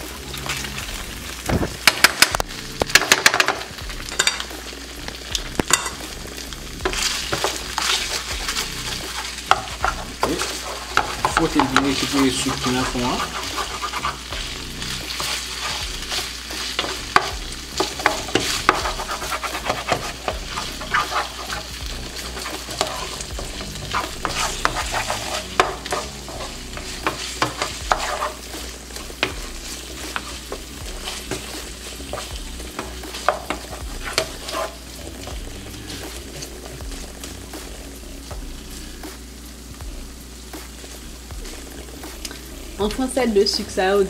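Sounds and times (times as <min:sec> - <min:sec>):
meat sizzling in frying pan: 0:00.0 - 0:44.0
wooden spatula scraping pan: 0:06.8 - 0:37.3.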